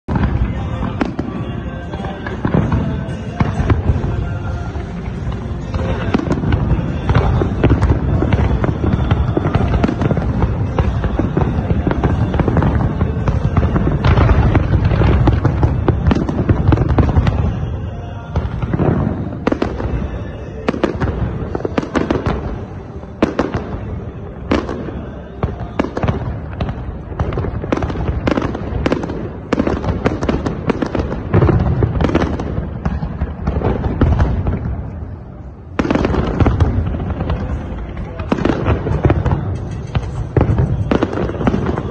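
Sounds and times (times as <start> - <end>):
fireworks bangs and rumble: 0.0 - 41.9
fireworks cracks and pops: 35.7 - 41.9.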